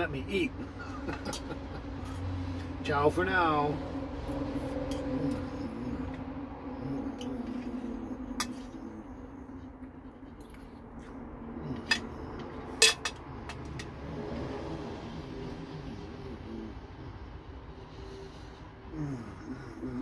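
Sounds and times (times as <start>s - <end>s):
steady low hum: 0.0s - 20.0s
cutlery clinking on a plate: 12.8s - 13.9s.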